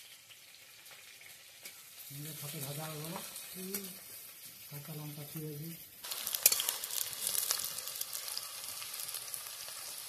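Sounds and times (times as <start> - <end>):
onions sizzling in hot oil: 0.0 - 10.0
spatula scraping a metal pan: 6.1 - 7.7.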